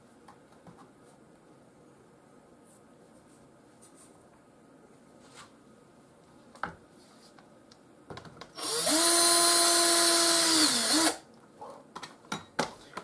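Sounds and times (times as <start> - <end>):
power drill drilling through plastic: 8.6 - 11.2.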